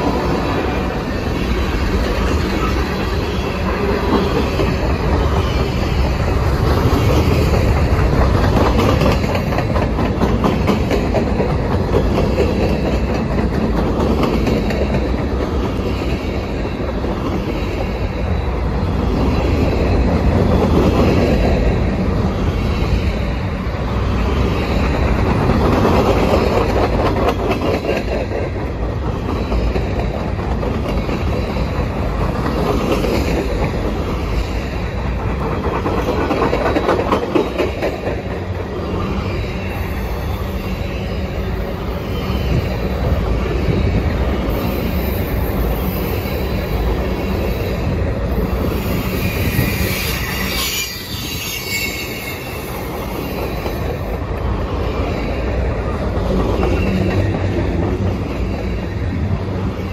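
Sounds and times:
wheels clattering on rails: 0:00.0 - 0:18.0, 0:24.2 - 0:40.7
freight train rumbling past: 0:00.0 - 0:59.9.

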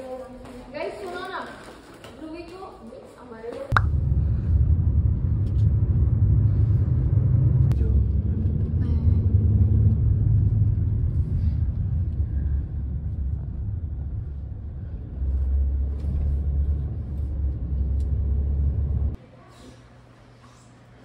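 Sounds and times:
car interior rumble: 0:03.8 - 0:19.2.

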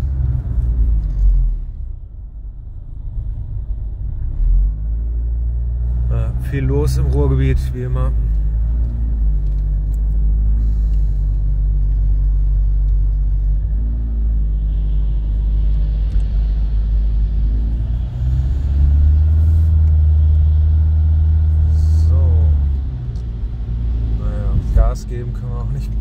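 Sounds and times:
car engine drone in cabin: 0:00.0 - 0:26.0.

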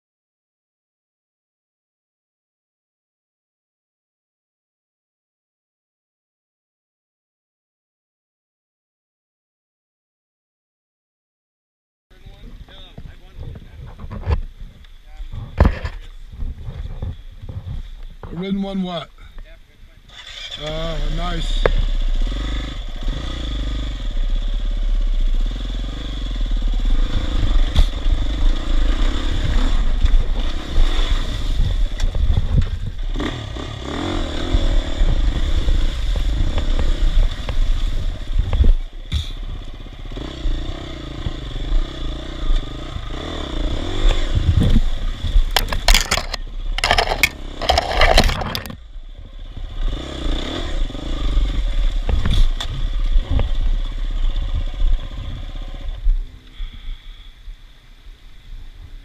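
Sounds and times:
dirt bike engine: 0:12.1 - 0:58.2
rocks clattering: 0:44.6 - 0:48.8.

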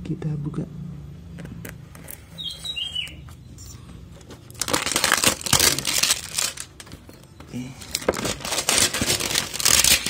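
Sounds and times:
plastic wrapping crinkling: 0:04.2 - 0:10.0
plastic wrapping being slit: 0:04.5 - 0:06.8, 0:08.0 - 0:10.0.

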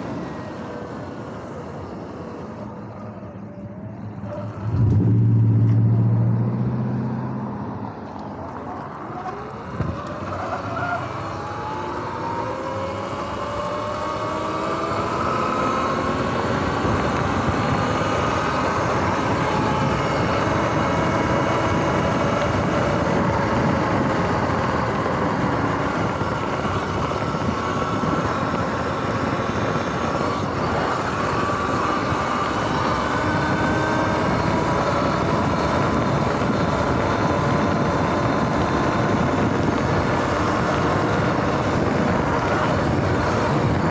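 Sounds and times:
wind and tyre noise: 0:00.0 - 0:43.9
electric motor whine: 0:11.0 - 0:43.9.

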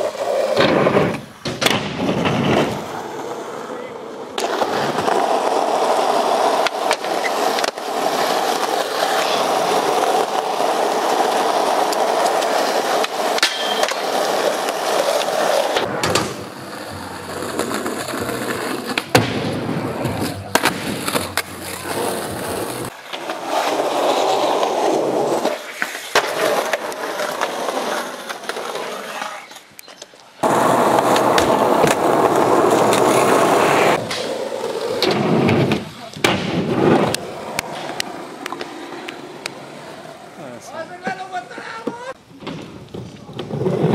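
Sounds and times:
skateboard wheels rolling on concrete: 0:00.0 - 0:43.9
skateboard pops and landings: 0:00.5 - 0:02.9, 0:04.3 - 0:10.5, 0:11.8 - 0:23.4, 0:25.4 - 0:27.6, 0:30.4 - 0:39.5, 0:41.8 - 0:43.9.

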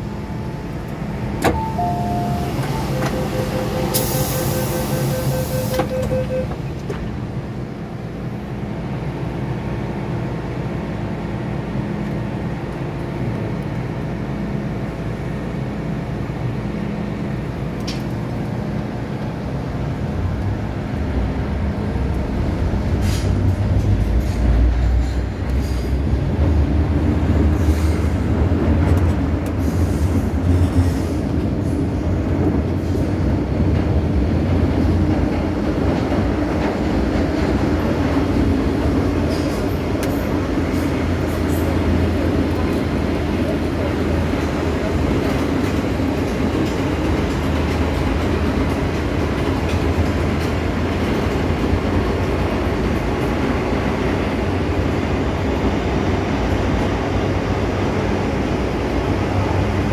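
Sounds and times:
train car rattles and clicks: 0:00.0 - 0:07.7, 0:10.9 - 0:59.9
subway car hum: 0:00.0 - 0:59.9
train rumbling: 0:00.0 - 0:59.9.

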